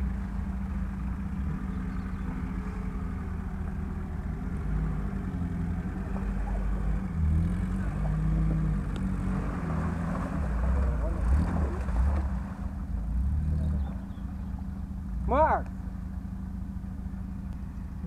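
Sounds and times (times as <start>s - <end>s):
car engine at low revs: 0.0s - 18.0s
tyres churning through water: 6.0s - 13.3s.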